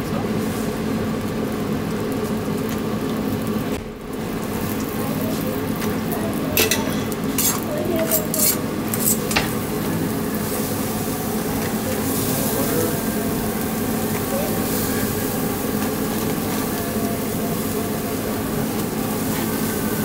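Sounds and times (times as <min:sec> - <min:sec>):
butter sizzling on a grill: 0:00.1 - 0:20.0
metal tongs clicking on grill: 0:06.6 - 0:09.6.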